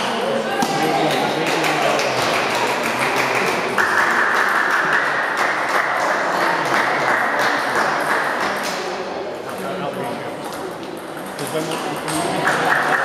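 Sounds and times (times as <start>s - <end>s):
table tennis balls clicking: 10.4s - 13.0s.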